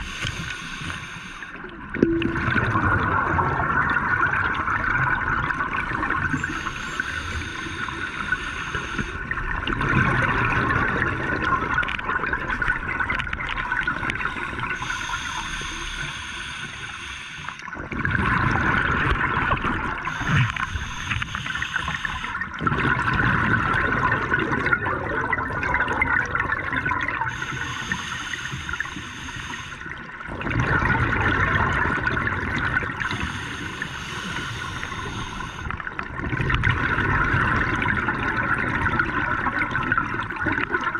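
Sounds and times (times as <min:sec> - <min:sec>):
regulator hissing inhale: 0:00.0 - 0:01.7, 0:06.3 - 0:09.3, 0:14.1 - 0:17.7, 0:20.0 - 0:22.5, 0:27.3 - 0:30.1, 0:33.0 - 0:35.8
exhaled bubbles rushing: 0:01.7 - 0:08.3, 0:09.2 - 0:15.0, 0:17.7 - 0:27.6, 0:29.9 - 0:33.6, 0:34.2 - 0:40.9.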